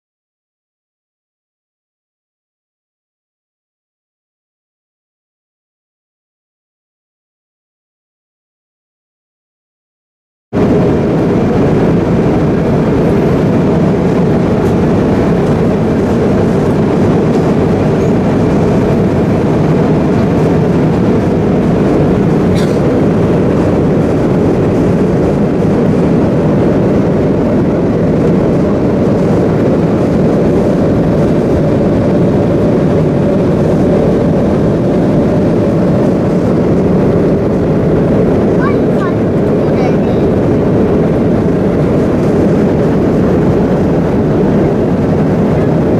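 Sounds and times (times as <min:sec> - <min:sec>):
airliner cabin engine rush: 0:10.6 - 0:45.9.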